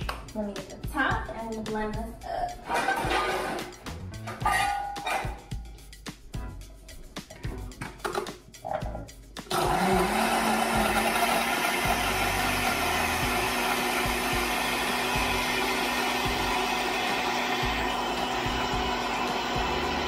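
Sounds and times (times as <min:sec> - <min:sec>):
blender blending ice: 0:09.5 - 0:20.0.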